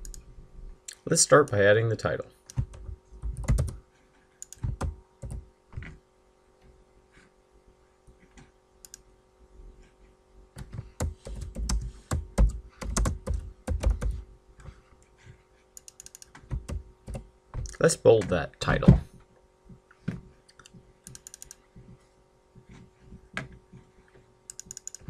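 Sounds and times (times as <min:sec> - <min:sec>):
typing on computer keyboard: 0:02.5 - 0:03.8, 0:04.4 - 0:05.4, 0:10.6 - 0:14.2, 0:15.8 - 0:17.2, 0:20.5 - 0:21.6, 0:24.5 - 0:25.0.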